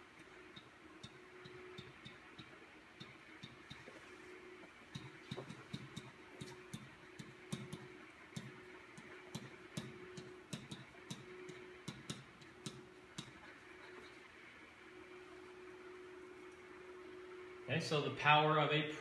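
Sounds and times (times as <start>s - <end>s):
stylus tapping on whiteboard: 0.6s - 4.0s, 4.9s - 13.4s.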